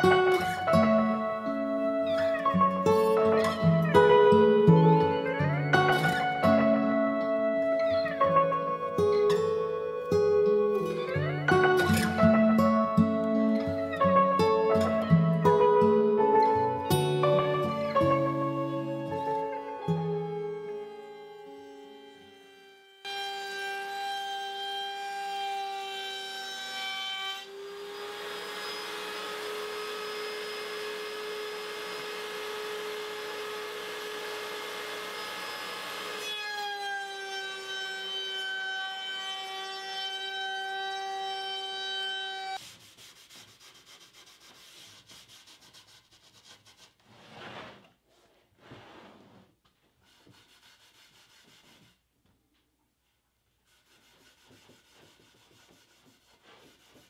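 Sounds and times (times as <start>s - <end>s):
router motor whining: 20.1s - 42.6s
router bit cutting wood: 20.2s - 42.6s
board rubbing and knocking on table: 42.6s - 52.0s, 53.7s - 57.0s.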